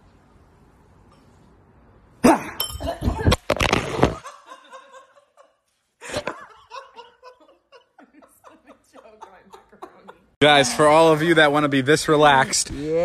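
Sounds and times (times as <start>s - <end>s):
laughter: 2.8s - 3.4s, 4.1s - 10.4s.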